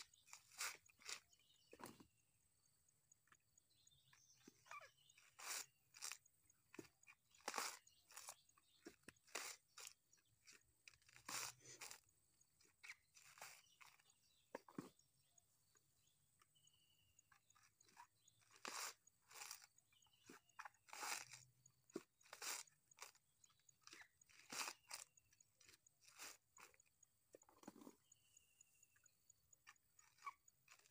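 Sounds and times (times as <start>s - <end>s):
coconut husk tearing: 20.9s - 21.4s.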